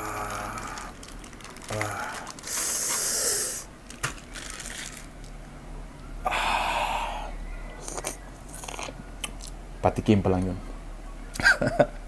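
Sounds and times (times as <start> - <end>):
person slurping: 1.7 - 3.7
wet mouth clicks: 7.8 - 9.6.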